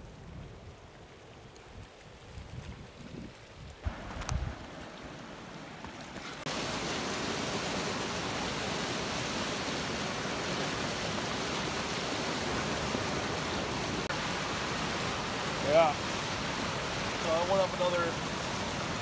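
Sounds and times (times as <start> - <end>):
flood water rushing: 3.8 - 19.0.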